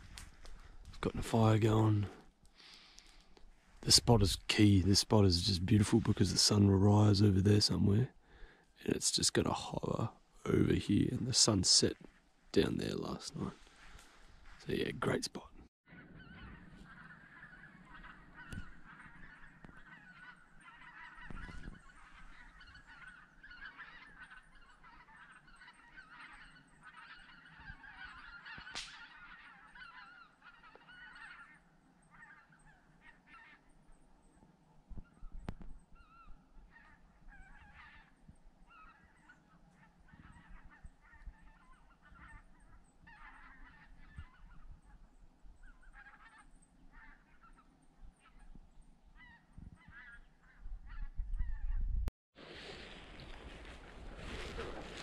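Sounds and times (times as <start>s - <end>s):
flock of birds calling: 0.0s - 12.0s, 12.6s - 51.8s, 52.7s - 55.0s.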